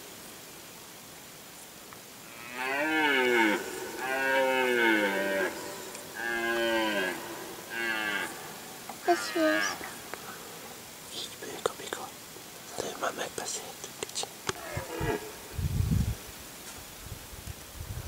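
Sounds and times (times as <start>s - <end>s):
deer stag roaring: 2.4s - 10.0s, 14.6s - 15.4s.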